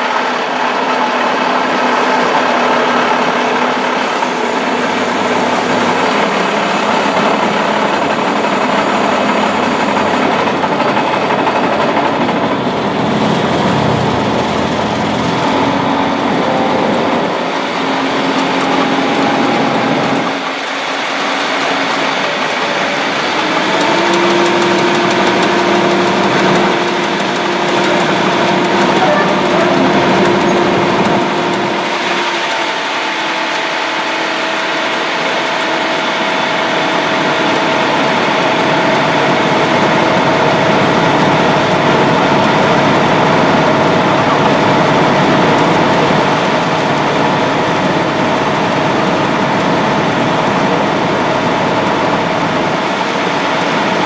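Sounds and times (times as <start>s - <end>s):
ferry engine humming: 0.0s - 54.0s.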